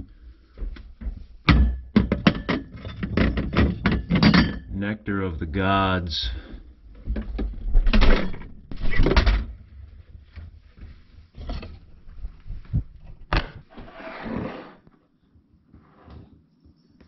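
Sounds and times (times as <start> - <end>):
glass bottles and fridge thuds: 1.4 - 4.8.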